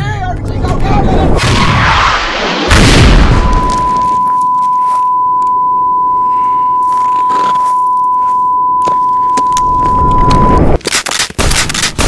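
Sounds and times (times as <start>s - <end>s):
high-pitched ear-ringing tone: 3.5s - 10.6s.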